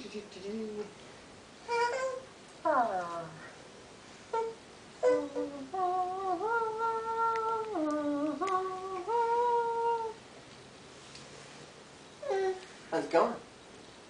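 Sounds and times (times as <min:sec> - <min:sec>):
person humming: 0:04.3 - 0:10.2, 0:12.2 - 0:12.6.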